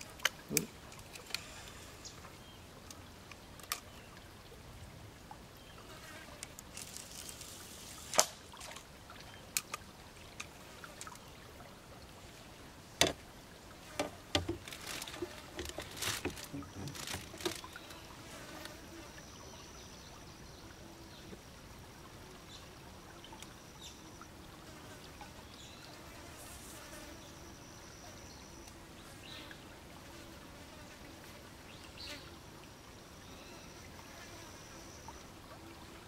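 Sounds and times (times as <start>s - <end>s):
insects buzzing: 5.8s - 8.7s, 13.8s - 19.8s, 22.2s - 36.0s
sharp knocks and clicks: 14.0s - 14.6s.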